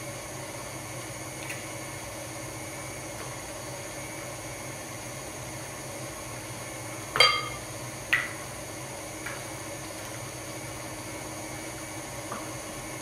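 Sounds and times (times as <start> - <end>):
dishware clinking: 7.2 - 7.6.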